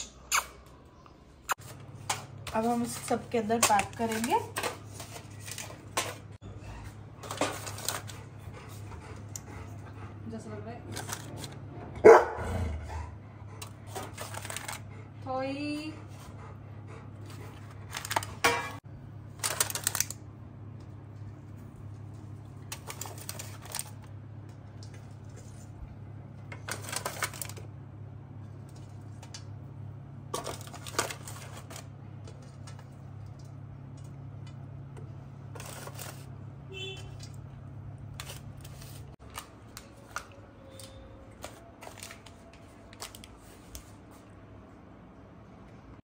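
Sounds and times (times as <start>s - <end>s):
aluminium foil containers crinkling: 1.6s - 6.4s, 7.2s - 8.2s, 10.9s - 11.6s, 13.9s - 14.9s, 17.6s - 20.3s, 22.0s - 24.1s, 26.4s - 27.7s, 30.3s - 33.6s, 35.5s - 37.4s, 38.1s - 44.1s.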